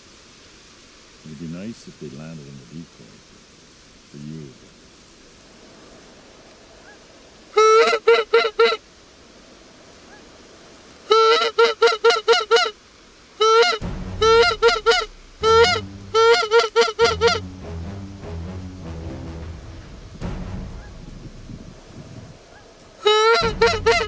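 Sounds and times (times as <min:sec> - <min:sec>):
goose call honking: 0:07.6 - 0:08.8, 0:11.1 - 0:12.8, 0:13.4 - 0:21.2, 0:22.5 - 0:24.0
low background music: 0:13.8 - 0:16.4, 0:17.0 - 0:22.0.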